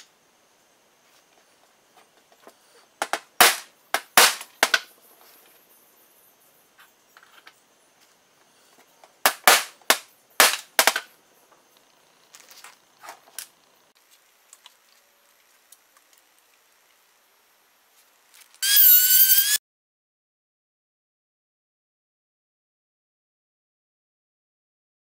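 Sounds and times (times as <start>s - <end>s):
angle grinder whine: 18.6s - 19.6s.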